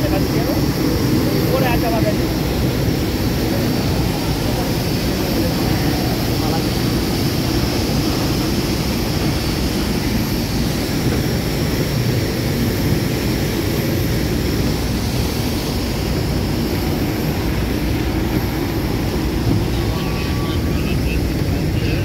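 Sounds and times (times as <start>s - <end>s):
aircraft low rumble: 0.0s - 22.0s
faint high whine: 15.7s - 22.0s.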